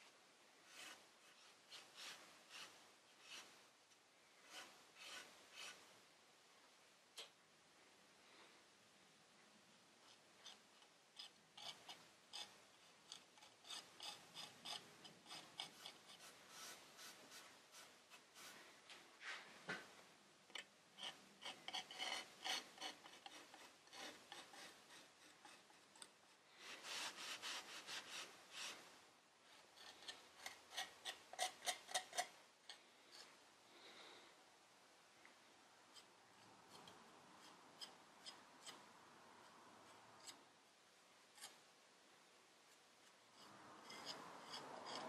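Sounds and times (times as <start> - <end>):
palette knife scraping: 0.6 - 3.6, 4.4 - 5.9, 11.2 - 18.7, 21.0 - 28.9, 29.5 - 32.3, 43.4 - 45.0.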